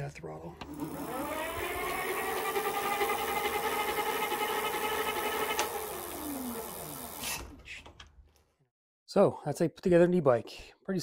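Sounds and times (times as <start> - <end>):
hub motor whine: 0.6 - 7.3.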